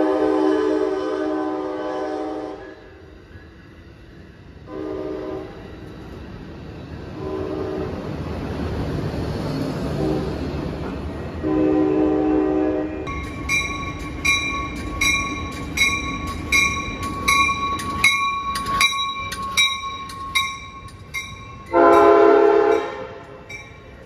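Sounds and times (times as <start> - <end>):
locomotive air horn blasts: 0.0 - 3.0, 4.7 - 5.6, 7.2 - 8.0, 10.0 - 10.4, 11.4 - 13.1, 21.7 - 23.5
train rumbling past: 0.0 - 24.0.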